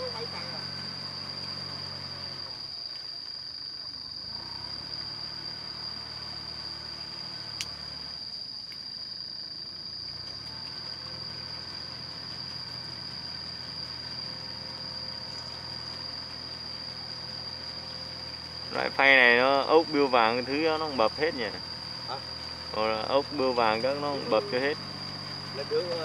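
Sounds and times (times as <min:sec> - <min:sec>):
high insect drone: 0:00.0 - 0:26.0
sharp click: 0:07.6 - 0:07.8
tractor engine running: 0:10.1 - 0:26.0.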